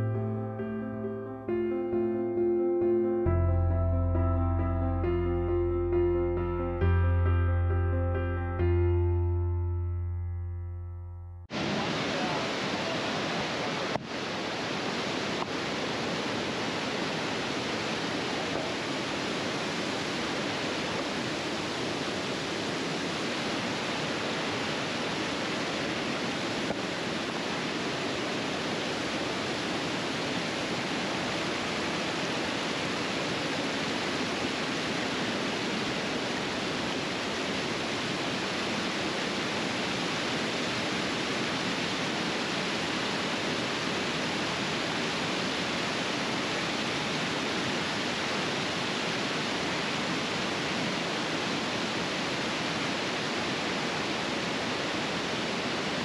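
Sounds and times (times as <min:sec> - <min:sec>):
waterfall rushing: 0:11.5 - 0:56.0.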